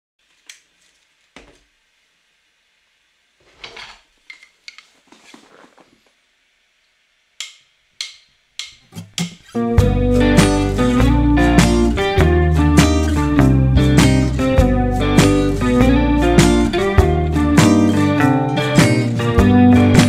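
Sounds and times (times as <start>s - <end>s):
paper rustling: 4.8s - 6.1s.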